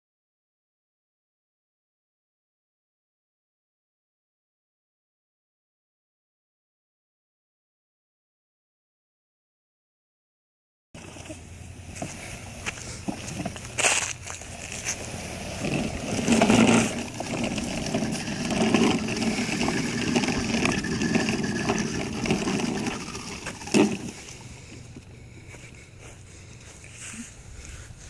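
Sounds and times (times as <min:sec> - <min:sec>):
lawn mower engine running: 0:11.0 - 0:27.1
mower wheels on concrete: 0:11.0 - 0:28.0.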